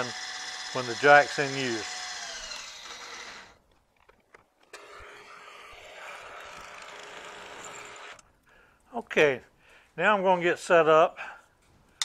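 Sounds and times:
drill boring into steel: 0.0s - 3.6s, 4.8s - 8.2s.

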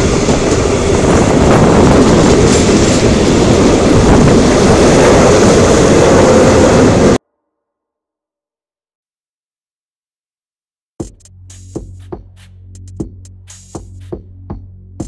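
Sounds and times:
train wheels rumbling on rails: 0.0s - 7.2s.

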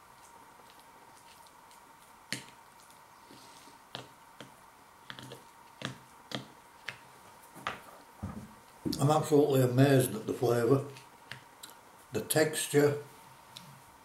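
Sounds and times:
food being chewed: 0.0s - 7.1s.

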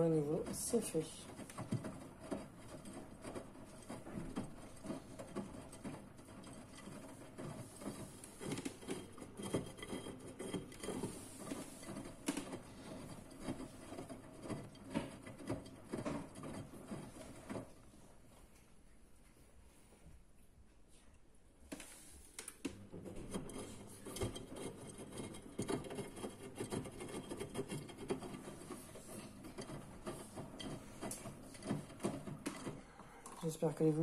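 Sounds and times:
washing machine drum sloshing laundry: 0.0s - 18.3s, 22.8s - 34.0s.

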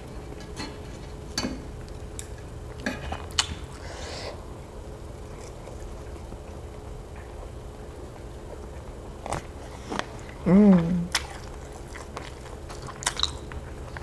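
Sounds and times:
wet eating smacks: 9.3s - 14.0s.

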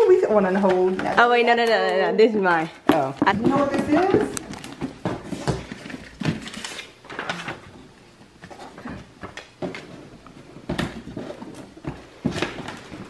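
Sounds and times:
paper rustling: 3.4s - 7.7s.

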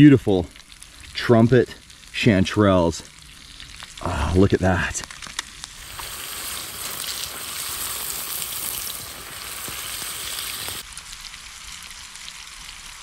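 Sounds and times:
mushrooms sizzling in butter: 5.5s - 13.0s.

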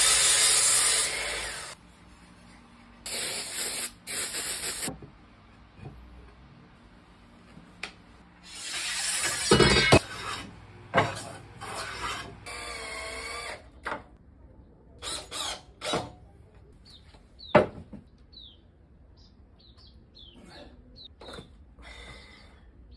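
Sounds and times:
small birds chirping: 16.8s - 22.9s.

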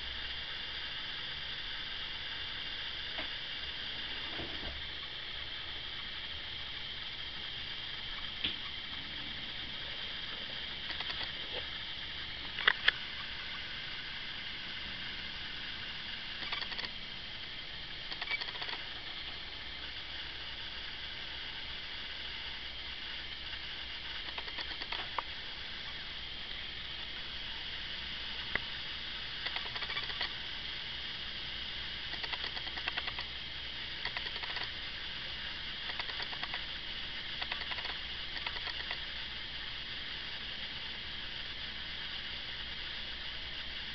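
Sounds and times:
steady hiss: 0.0s - 43.9s
small clicks and scratches: 10.4s - 11.7s, 16.4s - 17.0s, 18.1s - 18.9s, 24.2s - 25.3s, 29.4s - 30.4s, 32.1s - 33.3s, 34.0s - 34.8s, 35.9s - 36.7s, 37.4s - 39.1s.

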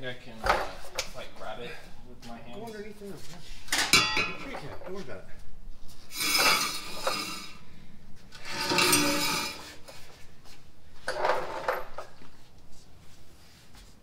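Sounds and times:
metal pipes clanking on concrete: 3.7s - 5.1s, 6.1s - 7.6s, 8.4s - 9.8s.

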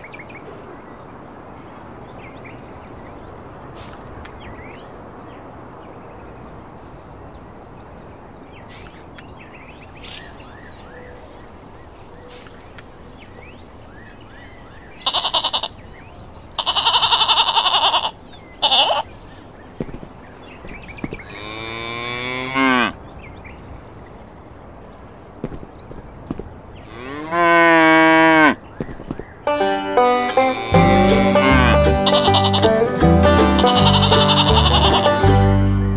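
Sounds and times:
faint bird chirps: 8.6s - 21.3s
sheep bleating: 15.0s - 15.7s, 16.6s - 19.0s, 30.5s - 32.8s, 33.4s - 35.2s
cow mooing: 30.5s - 32.7s, 33.6s - 35.2s.

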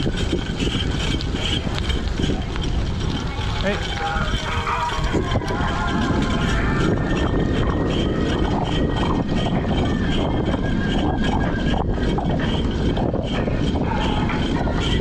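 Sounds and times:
bike tyres on wet tarmac: 0.0s - 11.1s
wind rush on microphone: 0.0s - 15.0s.

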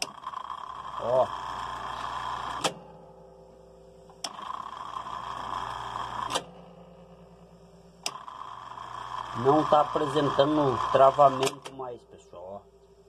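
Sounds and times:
drain pump humming: 8.0s - 11.7s.

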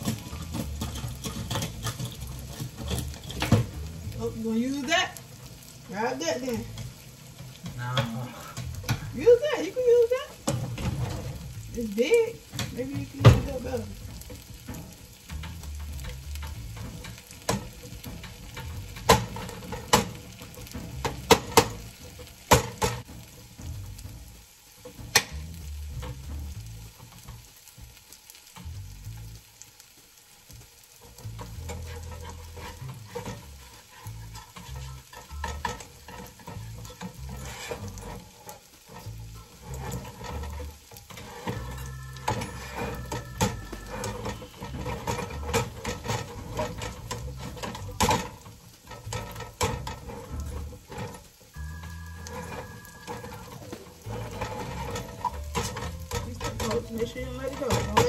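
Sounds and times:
utensil scraping a pan: 0.0s - 29.4s, 30.2s - 58.0s
food sizzling in a pan: 0.0s - 58.0s
utensil knocking against pan: 12.4s - 23.8s.

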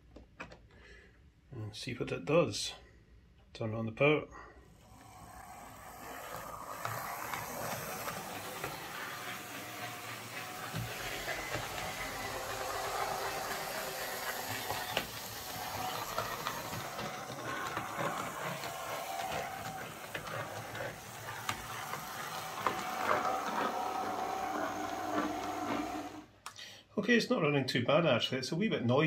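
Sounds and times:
model train motor whirring: 4.7s - 26.3s.

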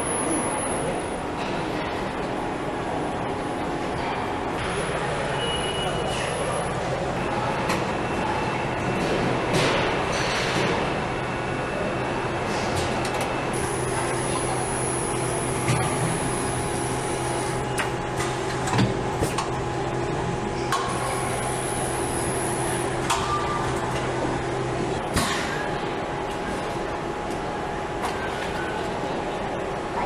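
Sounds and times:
machinery hum: 0.0s - 30.0s
machine clicks and clunks: 17.7s - 19.6s.

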